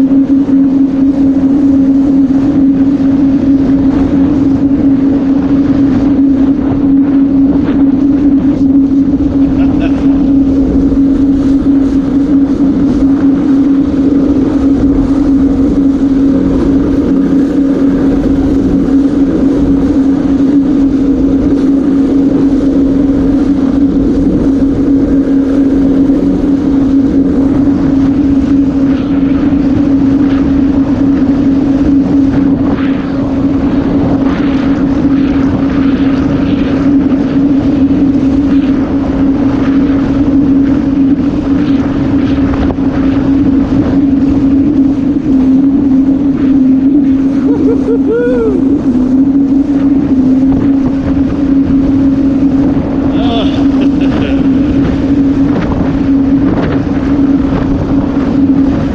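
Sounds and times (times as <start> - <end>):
personal watercraft engine drone: 0.0 - 58.9.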